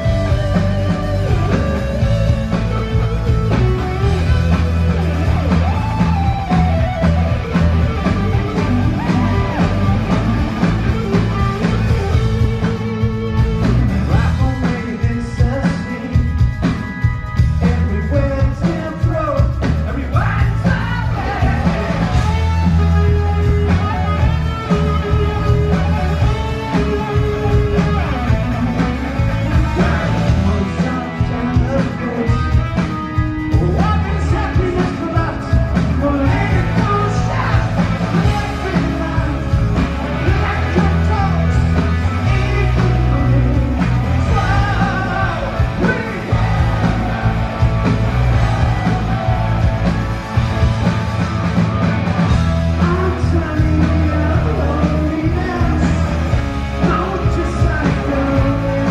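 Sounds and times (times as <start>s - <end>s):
drums: 0.0s - 58.9s
electric guitar: 0.0s - 58.9s
man singing lead vocal: 12.2s - 22.8s, 26.5s - 47.4s, 52.7s - 58.9s.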